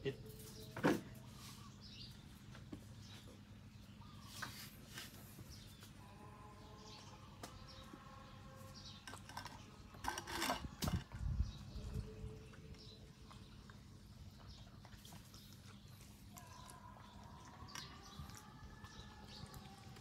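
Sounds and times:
steady low hum: 0:00.0 - 0:20.0
puppy chewing vegetables: 0:10.6 - 0:20.0.

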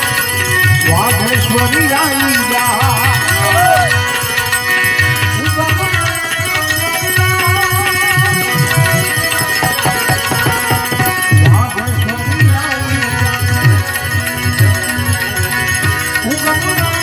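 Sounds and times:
hand cymbals struck: 0:00.0 - 0:17.0
harmonium notes: 0:00.0 - 0:17.0
hand drum strokes: 0:08.2 - 0:11.9.

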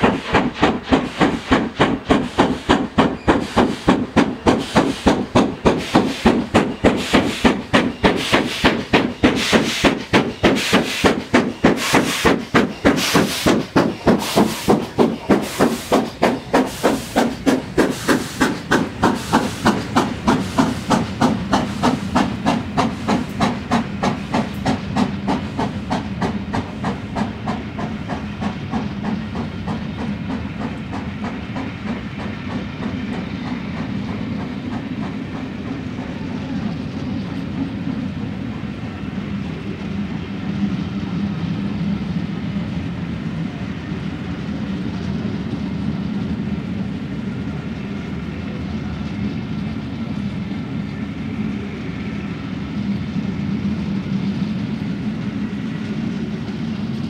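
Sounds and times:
steam locomotive exhaust beats: 0:00.0 - 0:57.0
train wheels rumbling on rails: 0:00.0 - 0:57.0.

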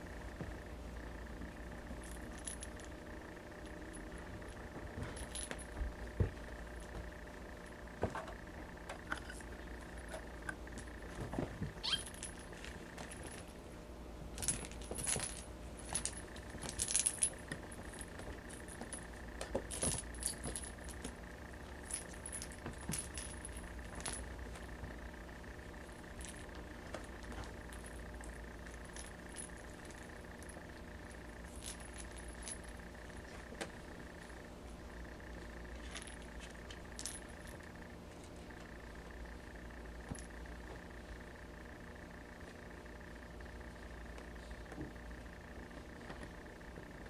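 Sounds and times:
jingle-bell toy ball tinkling: 0:11.8 - 0:12.3.

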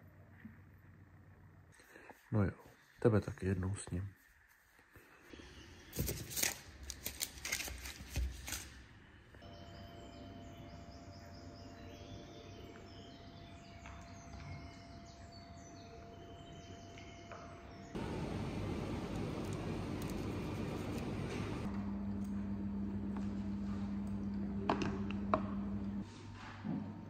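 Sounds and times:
birds chirping: 0:09.4 - 0:21.7.

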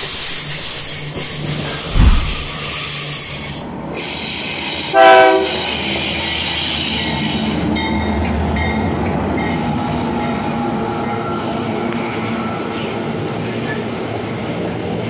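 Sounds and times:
freight train rumbling past: 0:00.1 - 0:15.0
locomotive air horn blast: 0:04.9 - 0:05.7.

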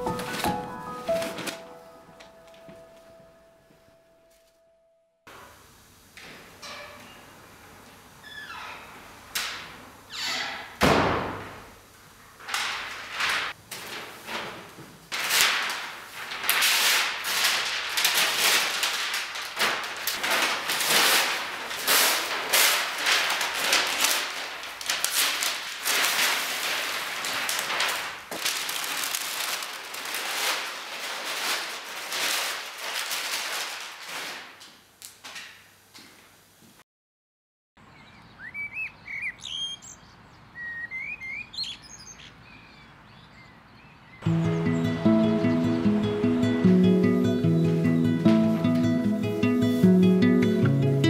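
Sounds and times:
paper tearing and crinkling: 0:12.5 - 0:35.4.

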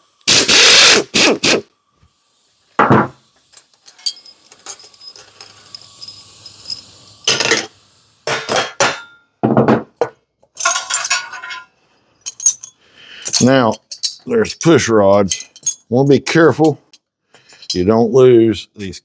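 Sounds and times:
metal tools clinking: 0:03.5 - 0:07.7, 0:10.6 - 0:17.9.

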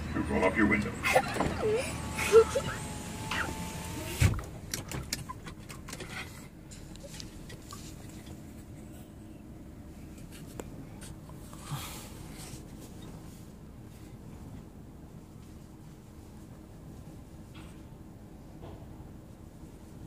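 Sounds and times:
truck and car wash machinery hum: 0:00.0 - 0:20.0
power window whirring shut: 0:01.2 - 0:05.0.

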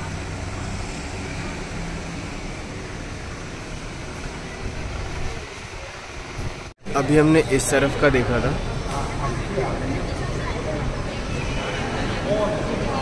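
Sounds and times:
faint voices: 0:04.2 - 0:13.0.

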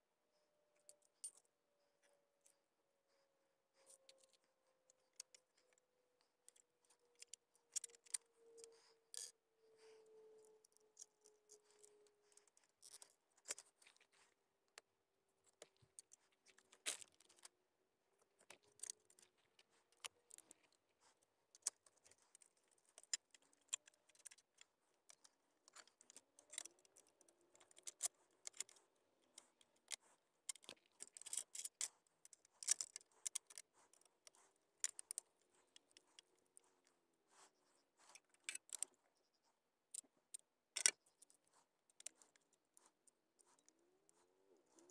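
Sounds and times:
screwdriver and metal parts clinking: 0:06.4 - 0:09.3, 0:10.0 - 0:14.2, 0:18.4 - 0:20.7, 0:21.6 - 0:36.2, 0:38.0 - 0:38.9, 0:40.8 - 0:41.4.

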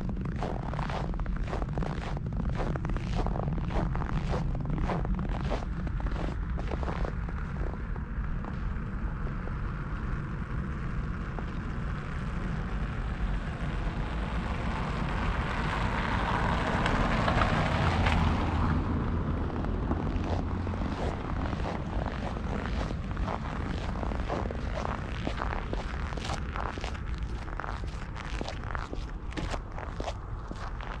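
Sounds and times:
footsteps crunching in snow: 0:00.1 - 0:07.8, 0:20.0 - 0:31.0
car driving past on snow: 0:13.0 - 0:31.0.

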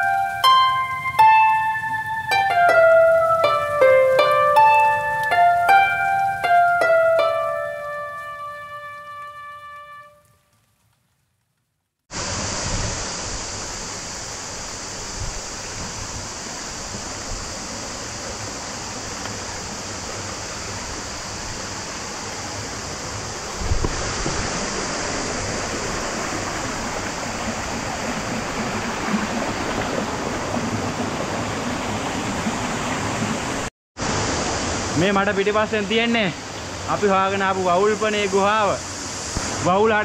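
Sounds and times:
stream rushing over rocks: 0:00.0 - 0:10.3, 0:12.1 - 0:40.0.

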